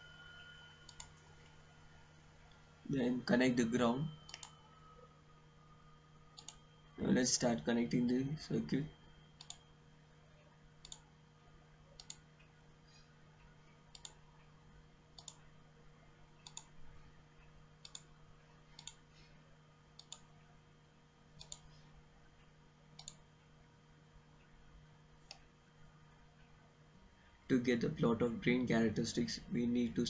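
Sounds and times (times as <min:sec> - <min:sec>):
low steady hum: 0:00.0 - 0:30.0
computer mouse clicks: 0:00.9 - 0:01.2, 0:04.3 - 0:04.6, 0:06.4 - 0:06.6, 0:09.4 - 0:09.6, 0:10.8 - 0:11.0, 0:12.0 - 0:12.3, 0:13.9 - 0:14.2, 0:15.2 - 0:15.4, 0:16.4 - 0:16.7, 0:17.8 - 0:18.1, 0:18.8 - 0:19.0, 0:20.0 - 0:20.3, 0:21.4 - 0:21.8, 0:23.0 - 0:23.2.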